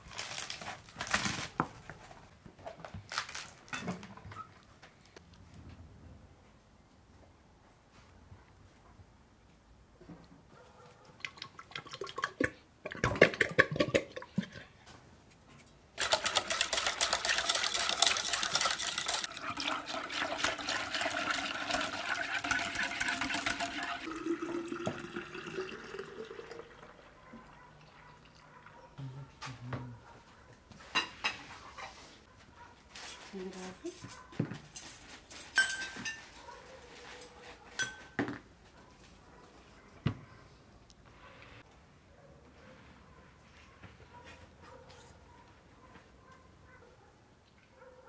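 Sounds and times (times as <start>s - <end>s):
whisk rattling against pot: 16.0s - 24.0s
water pouring: 16.0s - 27.2s.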